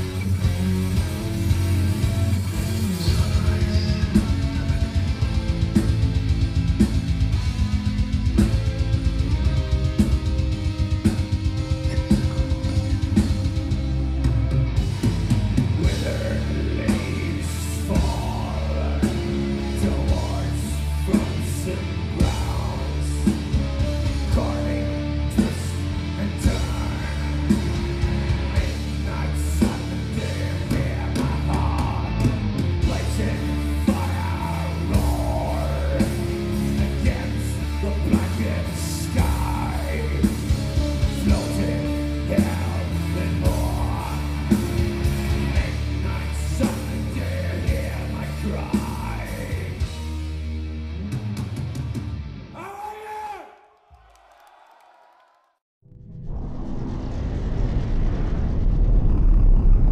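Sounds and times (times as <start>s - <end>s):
drum kit: 0.0s - 52.5s
bass guitar: 0.0s - 52.6s, 55.9s - 59.9s
distorted electric guitars: 0.0s - 52.6s, 56.1s - 59.9s
harsh yelled vocals: 11.2s - 50.1s, 52.4s - 55.6s.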